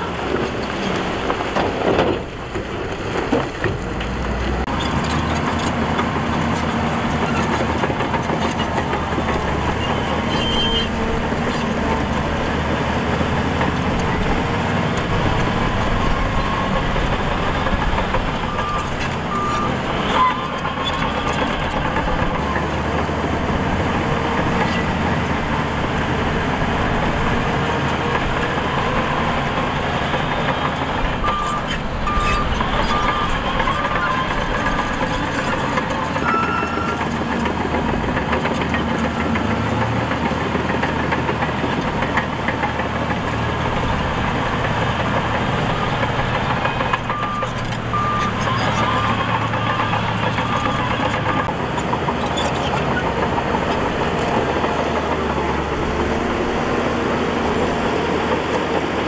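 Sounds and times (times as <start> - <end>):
diesel engines running: 0.0 - 59.0
reversing alarm beeping: 18.4 - 22.6, 36.2 - 37.0, 46.6 - 51.5.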